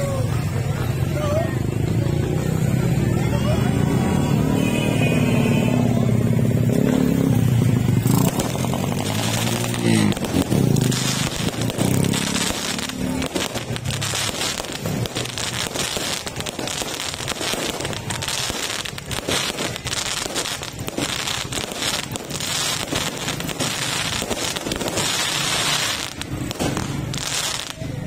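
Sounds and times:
fireworks crackling: 0.0s - 28.0s
vehicle engine running: 6.9s - 27.7s.

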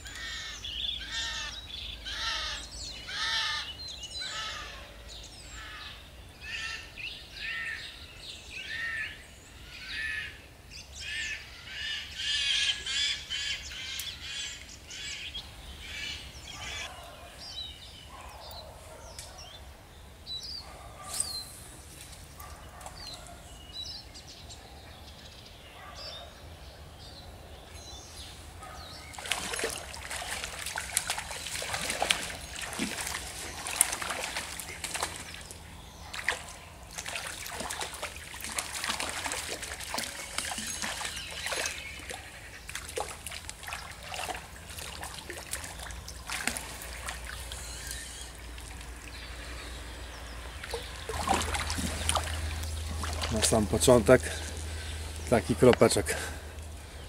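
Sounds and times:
fish thrashing and splashing: 29.1s - 55.4s.

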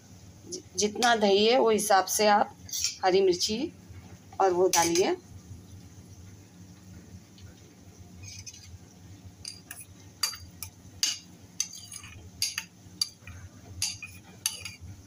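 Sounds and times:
spoon clinking and scraping bowl: 9.4s - 14.9s.

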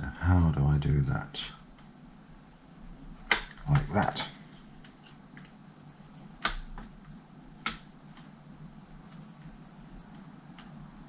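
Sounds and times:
sharp plastic clicks: 3.2s - 3.9s, 6.4s - 8.3s.

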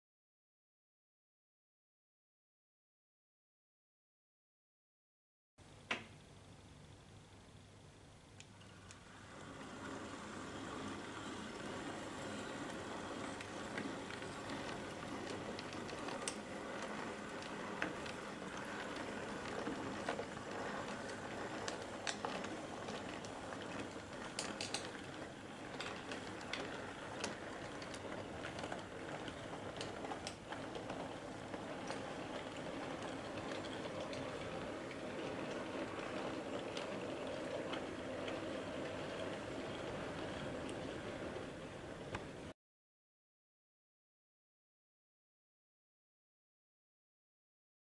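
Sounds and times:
wheels clicking over rail joints: 8.6s - 42.5s
model train motor whirring: 9.0s - 42.2s.

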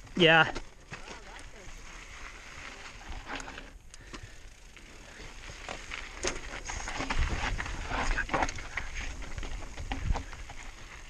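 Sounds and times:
bike tyres crunching over gravel: 0.0s - 11.0s
bike clattering over bumps: 3.0s - 11.0s.

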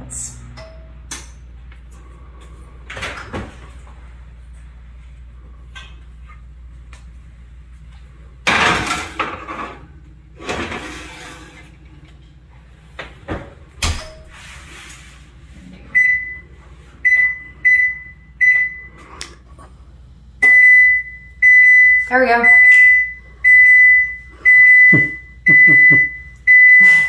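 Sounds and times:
baking sheet scraping onto oven rack: 8.8s - 11.8s, 14.0s - 15.4s
oven door shutting: 13.0s - 14.5s
control panel beeps: 20.4s - 26.9s.

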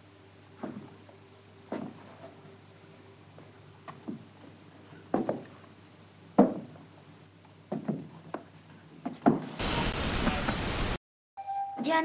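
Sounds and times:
loud steady static hiss: 0.0s - 11.0s
sharp knocks: 6.4s - 6.8s.

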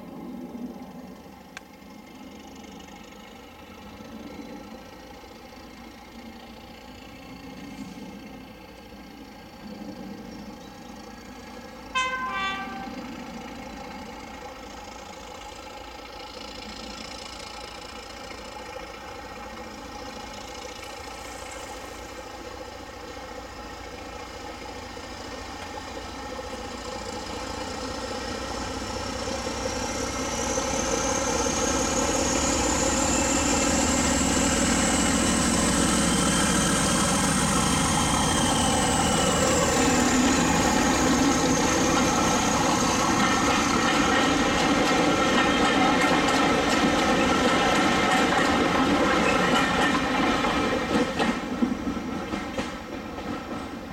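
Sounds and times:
diesel locomotive engine working: 0.0s - 53.9s
two-tone locomotive horn: 11.8s - 13.6s.

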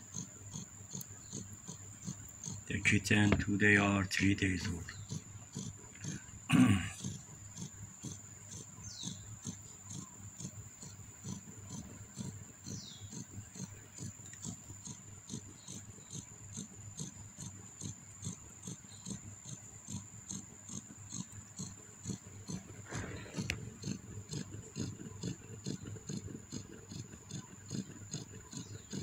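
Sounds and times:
kittens suckling: 0.0s - 29.0s.

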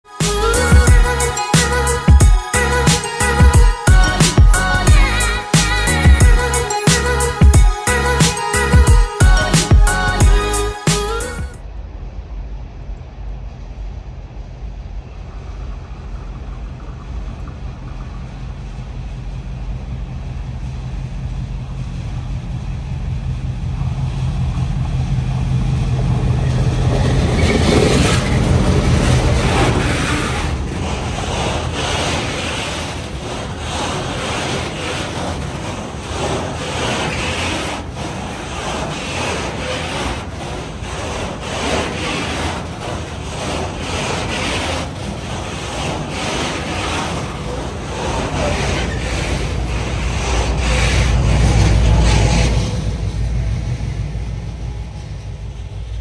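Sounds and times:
electric locomotive humming: 0.0s - 56.0s
freight train rumbling: 0.0s - 56.0s
wheels clacking on rails: 15.8s - 56.0s.

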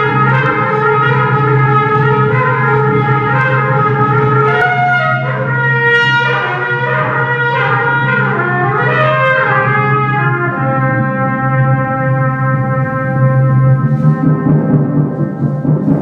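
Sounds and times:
jazz trumpet bending notes: 0.0s - 16.0s
light drum kit strokes: 12.8s - 16.0s.

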